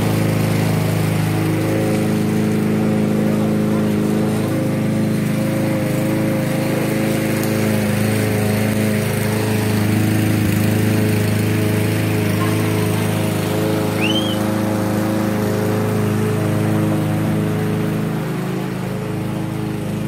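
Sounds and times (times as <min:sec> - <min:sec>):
lawn mower engine running: 0:00.0 - 0:20.0.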